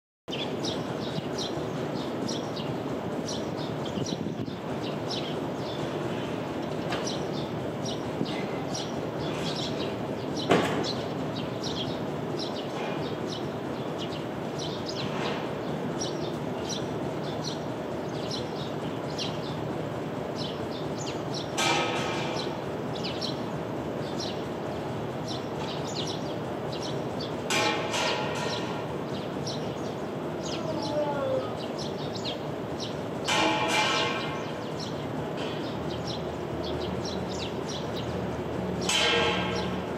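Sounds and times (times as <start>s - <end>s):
city traffic hum: 0.3s - 39.9s
sparrows chirping: 0.3s - 39.9s
sharp knock: 10.5s - 10.9s.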